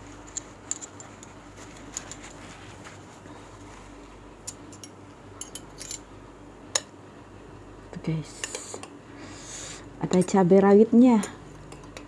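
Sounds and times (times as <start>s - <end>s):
tissue rustling on metal cutlery: 0.0s - 4.4s
low steady hum: 0.0s - 12.0s.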